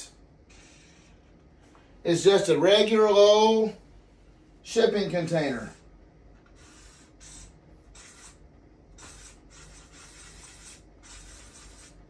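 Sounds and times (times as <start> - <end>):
marker rubbing on paper: 6.5 - 8.4, 9.0 - 12.0.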